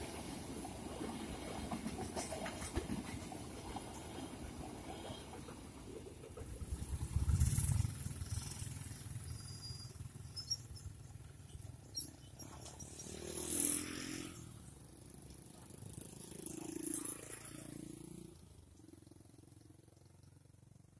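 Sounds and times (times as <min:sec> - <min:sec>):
motorcycle engines revving: 0:06.6 - 0:18.4.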